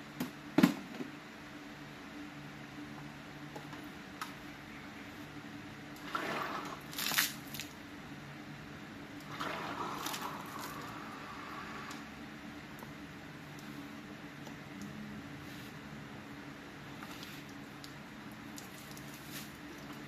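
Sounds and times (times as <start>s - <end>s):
pump humming: 2.0s - 20.0s
water splashing and gurgling: 6.0s - 7.7s, 9.2s - 11.4s.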